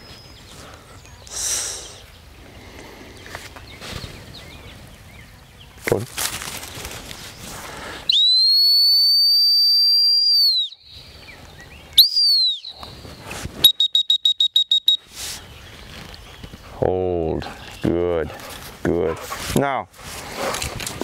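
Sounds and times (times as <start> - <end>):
dog-training whistle blasts: 8.1 - 10.8, 12.0 - 12.8, 13.6 - 15.0.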